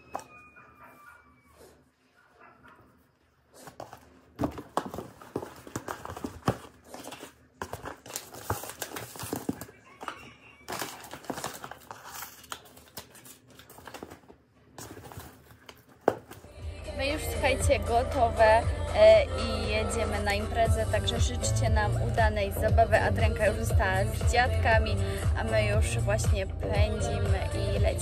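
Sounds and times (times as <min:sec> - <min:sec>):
paper crinkling and rustling: 0:03.8 - 0:16.5.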